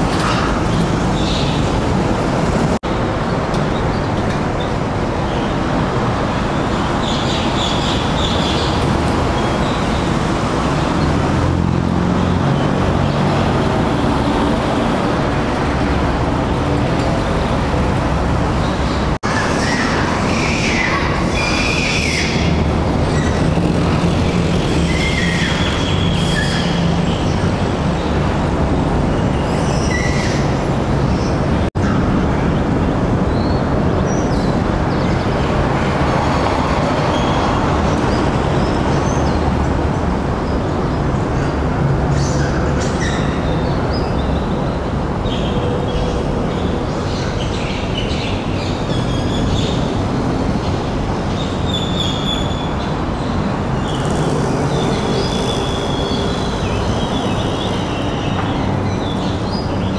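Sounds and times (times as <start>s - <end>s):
loud rumbling noise: 52.7s - 59.5s.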